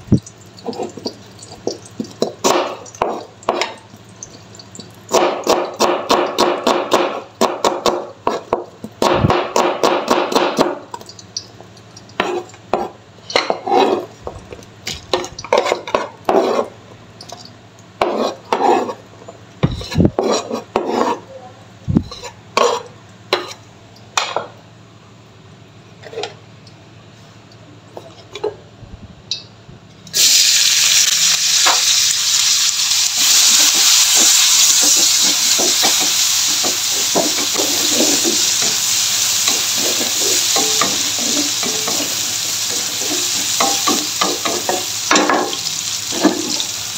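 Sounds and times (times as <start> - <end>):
vegetables sizzling in hot oil: 0.0 - 16.6, 30.1 - 46.9
knife chopping on cutting board: 5.1 - 10.8.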